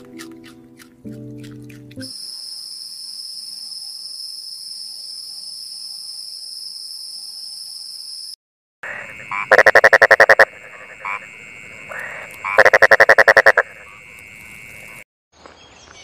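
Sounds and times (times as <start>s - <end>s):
high-pitched insect buzz: 2.0s - 15.0s
toad calling: 8.8s - 15.0s.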